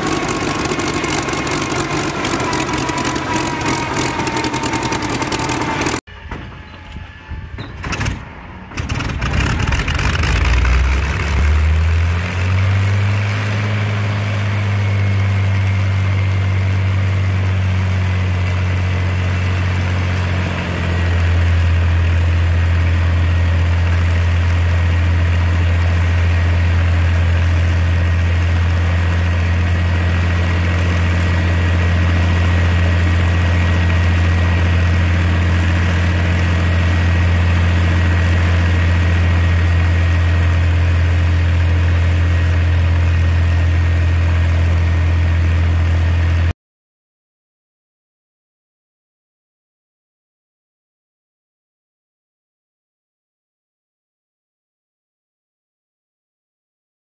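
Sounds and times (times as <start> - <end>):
aircraft engine idling: 0.0 - 7.5, 13.8 - 46.5.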